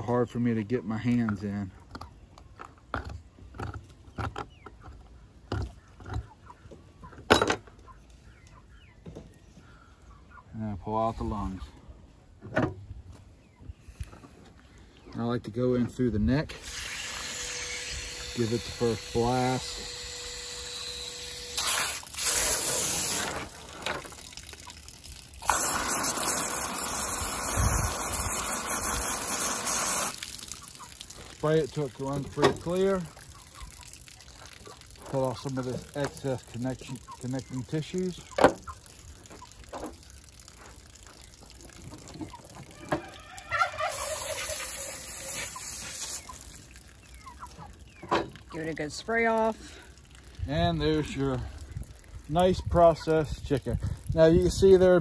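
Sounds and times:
hose spray nozzle spraying water: 0:16.5 - 0:33.1, 0:43.9 - 0:46.7.

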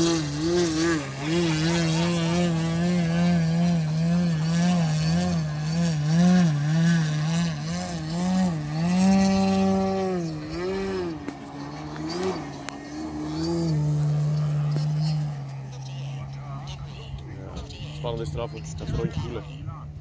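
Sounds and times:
model plane propeller hum: 0:00.0 - 0:20.0.

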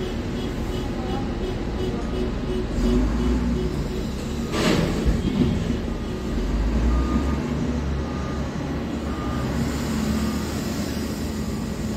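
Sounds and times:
faint reversing alarm beeping: 0:05.8 - 0:11.9.

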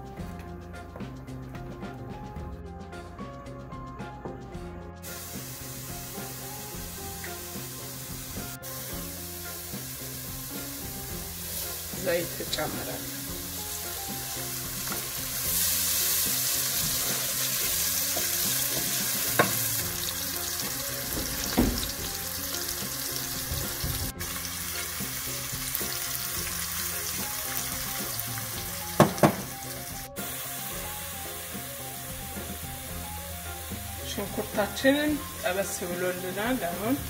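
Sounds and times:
onions sizzling in oil: 0:05.0 - 0:37.0
wooden spatula knocking pot: 0:29.0 - 0:29.5.

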